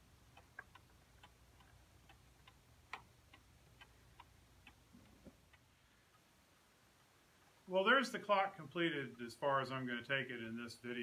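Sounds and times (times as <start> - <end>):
clock ticking: 0.0 - 6.3.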